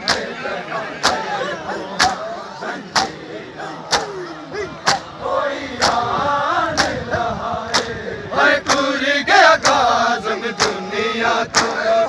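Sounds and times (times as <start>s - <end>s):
hands slapping chests: 0.0s - 0.3s, 1.0s - 1.3s, 2.0s - 2.2s, 2.9s - 3.2s, 3.9s - 4.2s, 4.8s - 5.1s, 6.8s - 7.0s, 7.7s - 8.0s, 9.6s - 9.9s, 10.6s - 10.8s, 11.5s - 11.8s
men chanting together: 0.0s - 12.0s.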